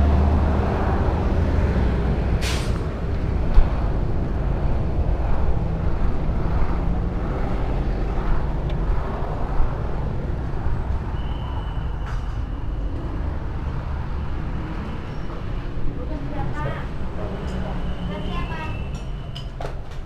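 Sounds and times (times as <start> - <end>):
passing cars and motorbikes: 0.0 - 20.0
short hiss: 2.4 - 2.8.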